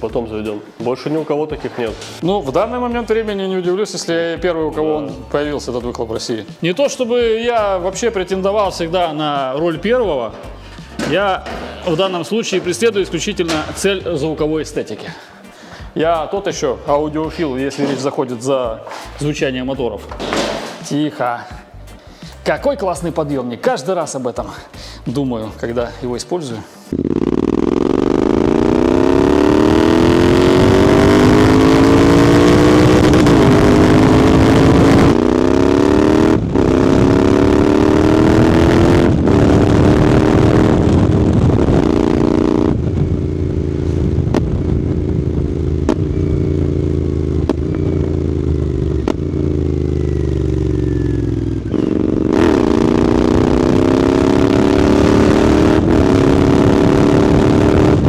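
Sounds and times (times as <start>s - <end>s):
motorcycle exhaust revving through gears: 26.9s - 58.0s.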